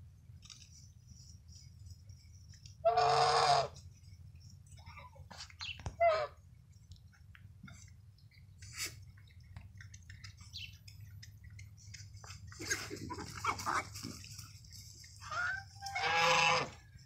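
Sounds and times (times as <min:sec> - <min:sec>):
animals rooting in grass: 0:00.0 - 0:17.0
animal calls: 0:02.8 - 0:03.8.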